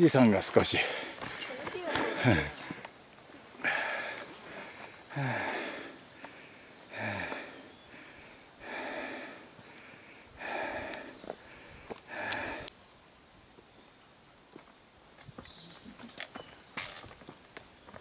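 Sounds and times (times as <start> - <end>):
person breathing heavily: 0.8 - 2.9, 3.6 - 12.7
faint clicks: 10.8 - 12.8.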